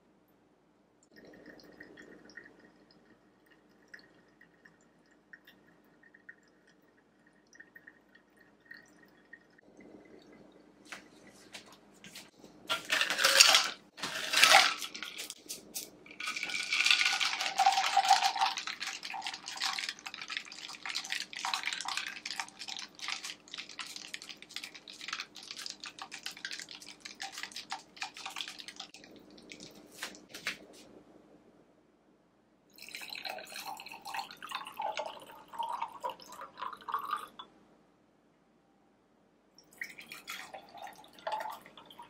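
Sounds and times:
faint steady hum: 0.0s - 42.0s
dripping: 1.0s - 11.9s, 16.1s - 30.6s.

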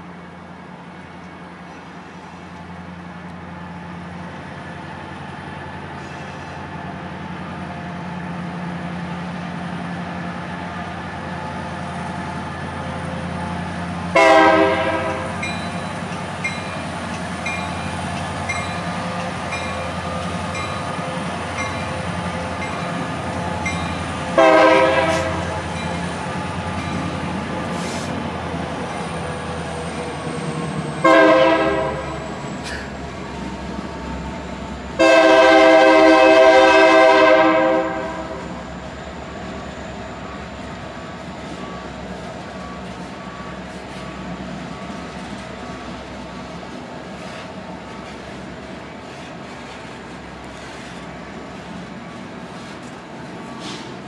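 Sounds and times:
diesel locomotive engine hum: 0.0s - 54.0s
multi-tone train horn blasts: 14.1s - 15.5s, 24.2s - 25.8s, 31.0s - 32.2s, 35.0s - 38.6s.

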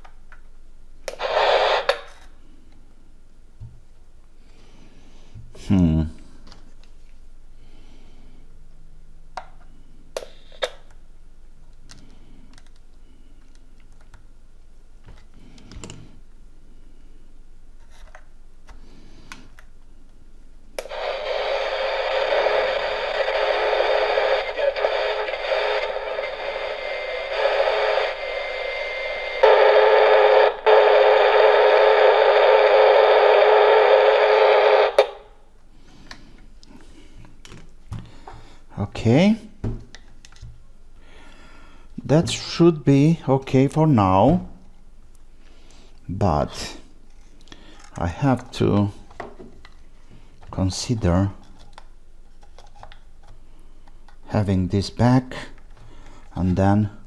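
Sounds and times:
radio static hiss: 1.1s - 2.2s, 20.8s - 35.4s.

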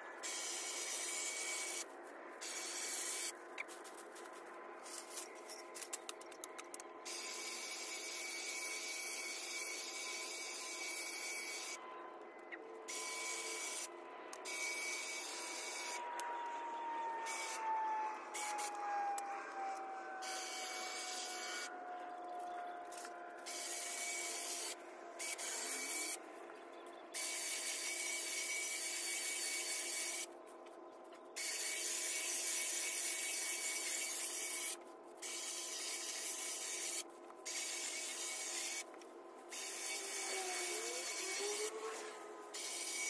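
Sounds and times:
electric hedge trimmer: 0.2s - 1.8s, 2.4s - 3.3s, 7.1s - 11.8s, 12.9s - 21.8s, 22.9s - 26.2s, 27.2s - 30.3s, 31.4s - 38.9s, 39.5s - 43.0s.

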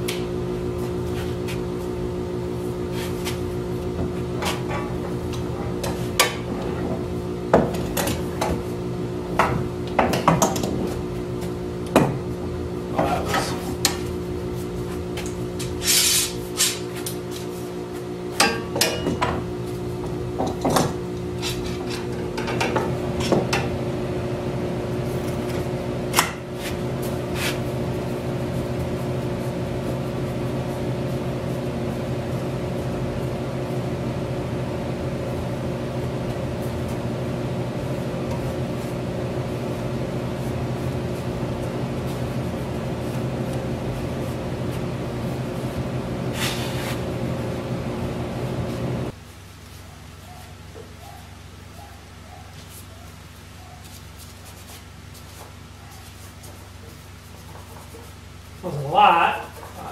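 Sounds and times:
steady hum: 0.0s - 59.9s.

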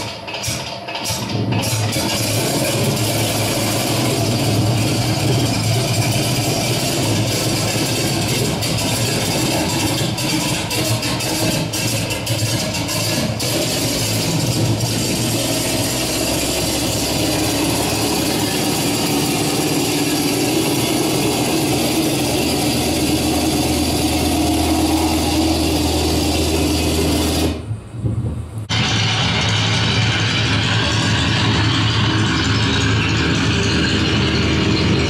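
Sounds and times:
piston aircraft engine running: 0.0s - 27.8s, 28.5s - 35.0s.

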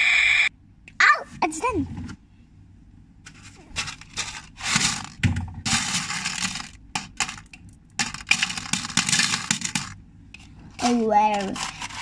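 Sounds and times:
crackling handling noise: 3.2s - 12.0s.

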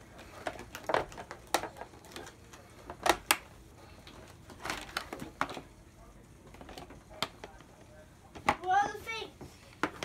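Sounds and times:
plastic toy parts knocking and clicking: 0.4s - 2.3s.

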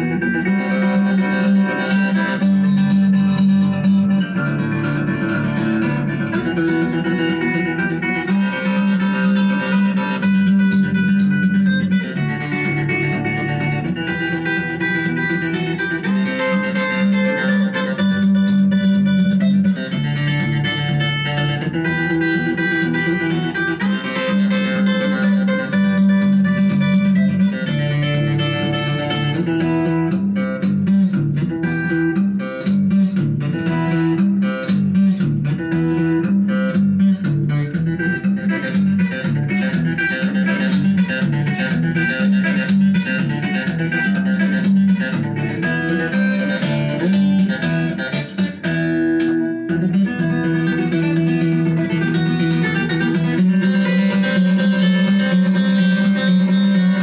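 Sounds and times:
guitar playing melody: 0.0s - 57.0s
pulsing bass line: 0.0s - 57.0s.

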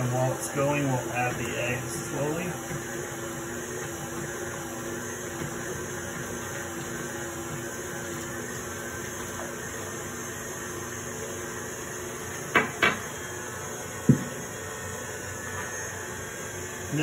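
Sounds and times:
stand mixer running: 0.0s - 17.0s
dishes knocking on countertop: 12.5s - 13.0s, 14.0s - 14.4s.

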